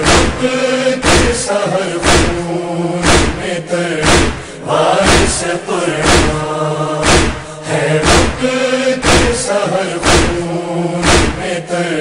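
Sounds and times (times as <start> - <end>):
hands striking chests: 0.0 - 0.4, 1.0 - 1.4, 2.0 - 2.4, 3.0 - 3.4, 4.0 - 5.4, 6.0 - 6.4, 7.0 - 8.4, 9.0 - 9.4, 10.0 - 10.4, 11.0 - 11.4
men's chorus chanting: 0.0 - 12.0.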